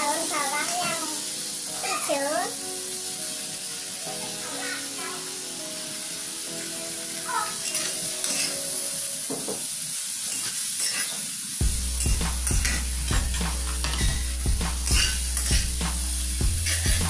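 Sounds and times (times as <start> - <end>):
food sizzling in a wok: 0.0 - 17.0
metal spatula scraping a wok: 7.6 - 8.6, 10.3 - 11.3, 11.9 - 17.0.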